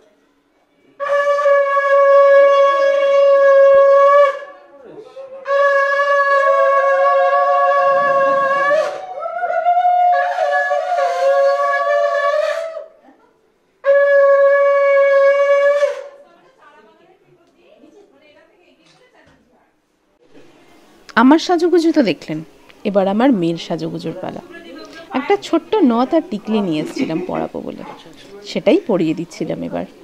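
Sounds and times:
conch shell blasts: 1.0 - 4.6, 5.4 - 9.2, 13.8 - 16.2.

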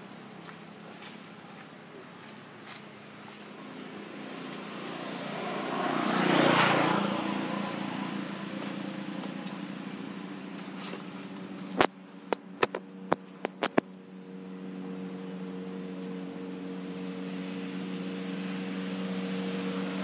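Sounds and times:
high insect buzz: 0.0 - 20.0
low engine-like hum: 0.0 - 20.0
vehicle passing: 0.0 - 20.0
sharp clicks: 11.8 - 13.8.

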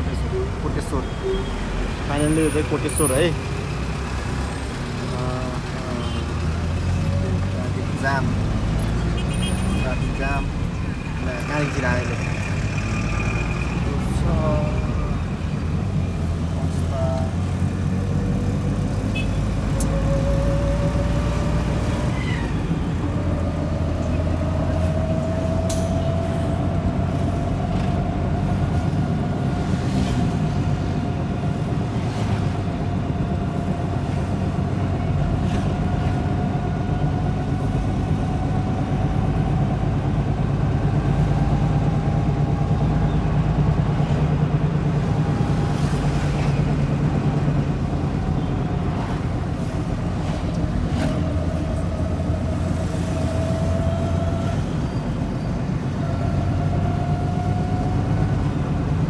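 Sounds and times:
car engine and road rumble: 0.0 - 59.0
rising engine whine: 17.4 - 59.0.

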